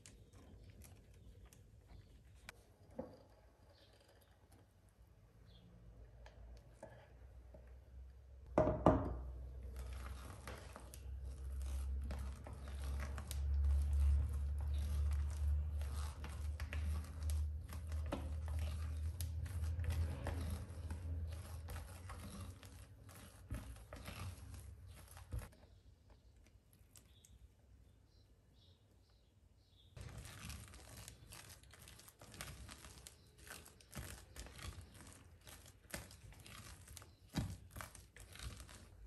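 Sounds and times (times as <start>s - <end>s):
knocks on glass bowl: 8.6s - 9.2s
spatula squelching and scraping: 9.4s - 25.8s, 30.0s - 39.0s.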